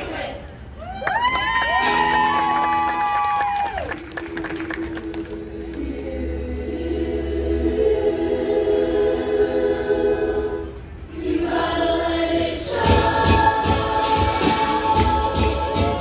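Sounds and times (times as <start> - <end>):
choir singing in harmony: 0.0 - 0.4, 4.2 - 16.0
steady beat: 12.7 - 16.0.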